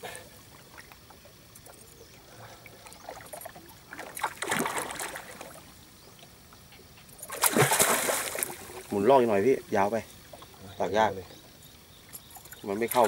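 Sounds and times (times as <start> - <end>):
water lapping: 0.0 - 13.0
fish splashing in water: 0.6 - 5.9, 7.2 - 9.1.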